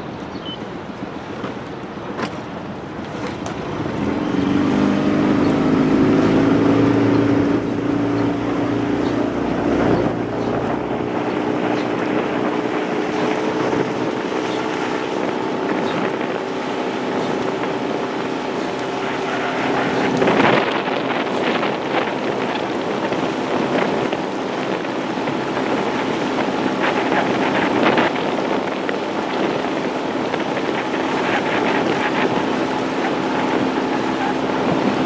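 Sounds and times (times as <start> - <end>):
wind on microphone: 0.0 - 35.0
outboard motor running: 0.8 - 35.0.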